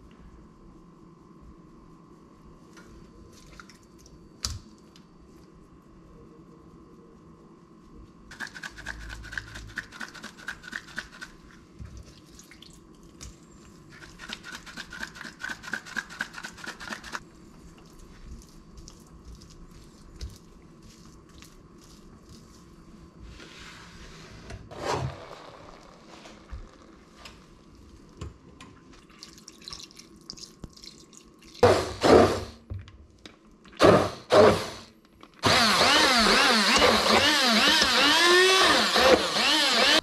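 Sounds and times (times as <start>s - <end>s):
hands rubbing seasoning into meat: 14.2s - 23.0s.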